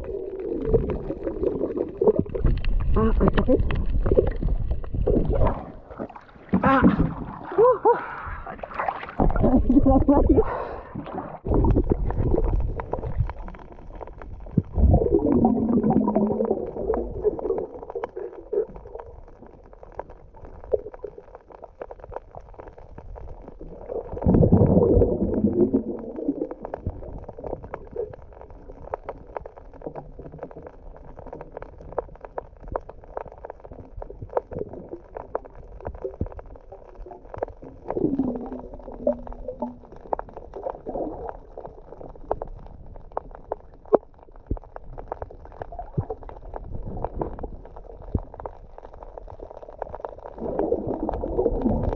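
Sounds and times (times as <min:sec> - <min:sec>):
crackle of fine clicks: 0:00.0 - 0:06.4, 0:10.5 - 0:51.9
bubbling: 0:00.0 - 0:51.9
muffled underwater rumble: 0:00.0 - 0:51.9.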